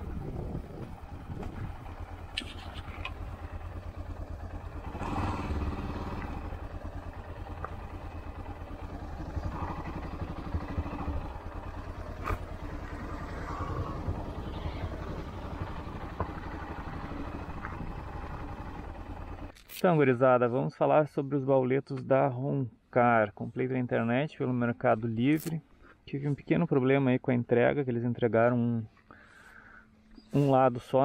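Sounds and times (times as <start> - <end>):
motorcycle engine running slowly: 0.0 - 19.5.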